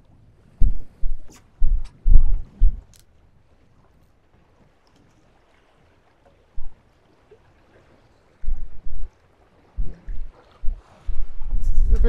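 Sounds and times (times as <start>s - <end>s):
wind buffeting microphone: 0.0s - 3.8s, 8.4s - 12.0s.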